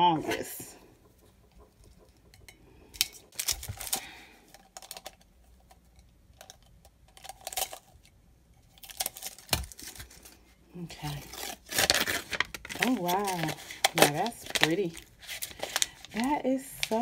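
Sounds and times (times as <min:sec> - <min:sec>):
plastic shrink wrap crinkling: 0:03.0 - 0:05.8, 0:06.4 - 0:08.1, 0:08.7 - 0:17.0.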